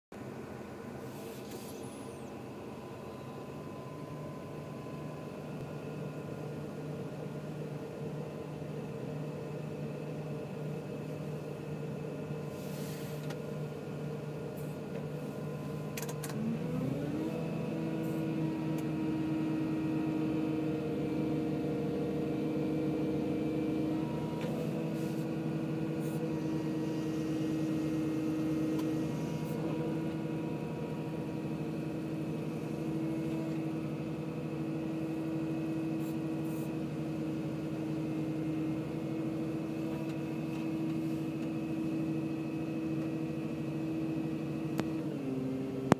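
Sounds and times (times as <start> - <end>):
excavator diesel engine: 0.2 - 45.9.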